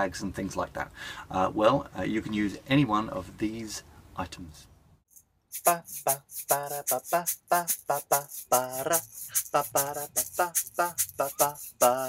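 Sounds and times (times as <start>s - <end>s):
song with rhythmic singing over a beat: 5.5s - 12.0s.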